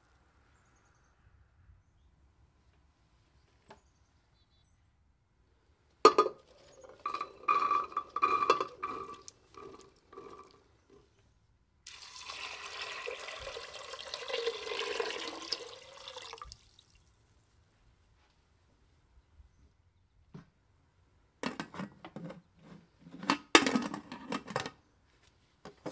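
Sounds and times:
chickpeas clattering into metal pot: 6.1 - 10.6
water pouring into pot: 7.1 - 10.6, 11.9 - 17.0.

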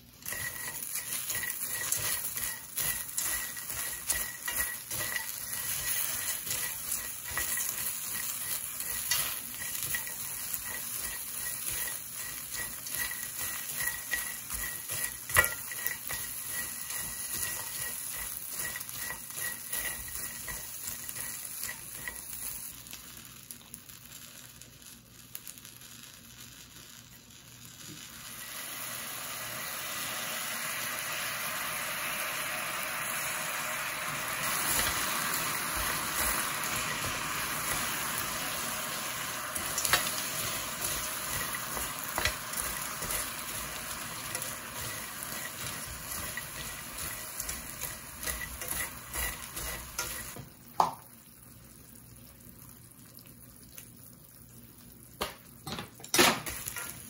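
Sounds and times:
food sizzling in a pan: 0.0 - 57.0
chopsticks scraping a pan: 0.2 - 22.8, 34.3 - 50.4.

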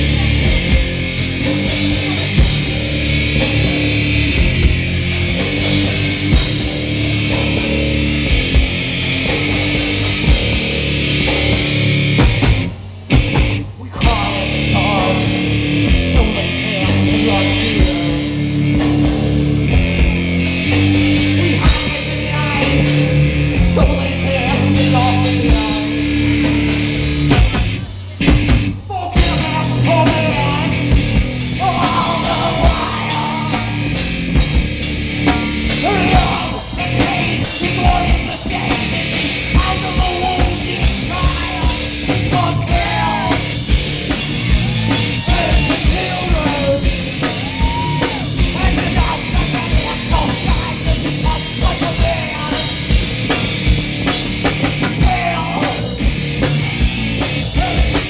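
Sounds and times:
distorted electric guitar chords: 0.0 - 58.0
drum kit: 0.0 - 58.0
person singing: 13.8 - 18.4, 21.4 - 26.8, 28.9 - 31.0, 31.6 - 33.9, 35.8 - 43.6, 44.5 - 52.8, 55.0 - 56.0.

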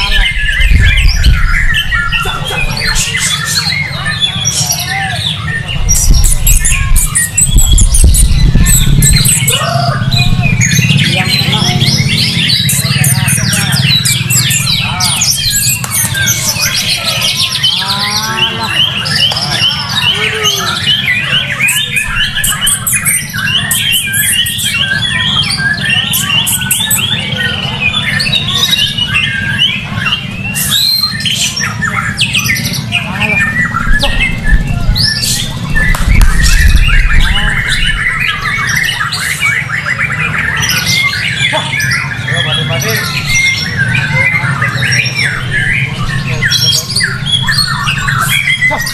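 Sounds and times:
birds singing whistles and trills: 0.0 - 48.9
other songbirds: 0.0 - 48.9
low rumble: 5.8 - 11.8, 33.7 - 38.7.

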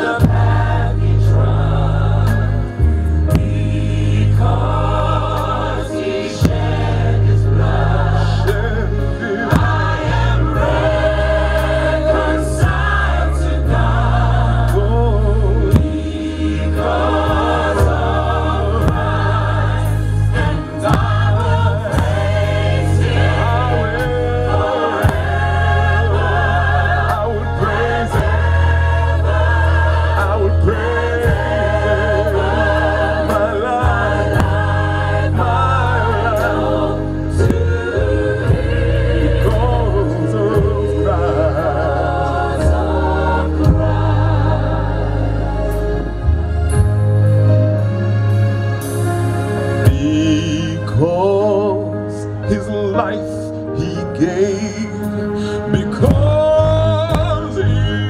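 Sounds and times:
deep bass notes: 0.0 - 58.0
gospel choir singing: 0.0 - 58.0
steady beat: 15.6 - 41.1.

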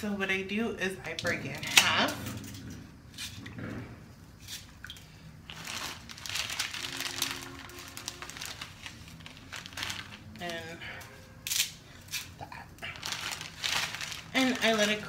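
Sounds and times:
dry spaghetti breaking: 4.4 - 10.6, 11.4 - 15.0
plastic packet crinkling: 5.4 - 15.0.

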